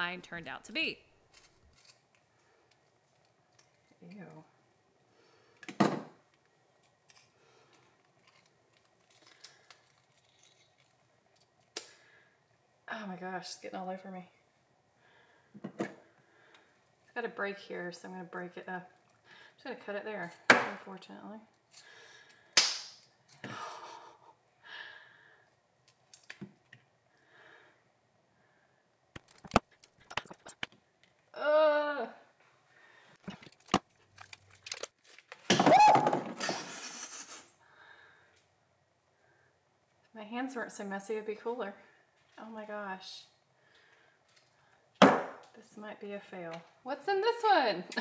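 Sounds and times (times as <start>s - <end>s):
breath: 5.1s - 5.7s, 11.9s - 12.4s, 15.0s - 16.8s, 19.2s - 19.6s, 21.8s - 22.6s, 23.4s - 25.6s, 27.1s - 28.8s, 32.7s - 33.2s, 37.6s - 38.4s, 43.6s - 44.9s.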